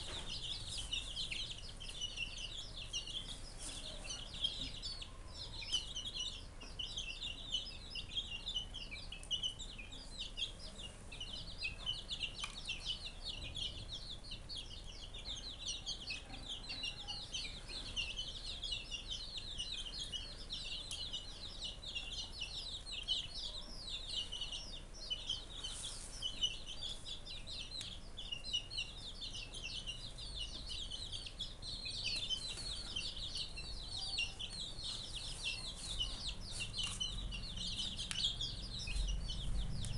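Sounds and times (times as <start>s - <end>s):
chicks peeping: 0.0s - 39.9s.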